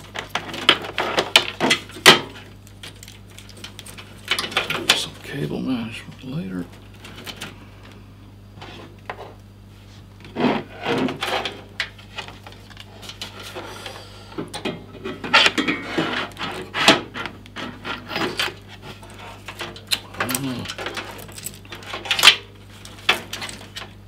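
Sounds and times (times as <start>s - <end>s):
low steady hum: 0.0s - 24.0s
cables scraping against pc case: 10.2s - 14.1s, 15.2s - 24.0s.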